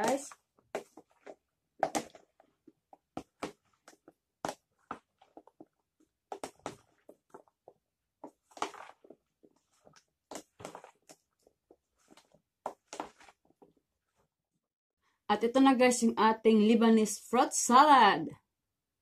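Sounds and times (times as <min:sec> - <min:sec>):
plastic spoon stirring fruit: 0:00.0 - 0:14.2.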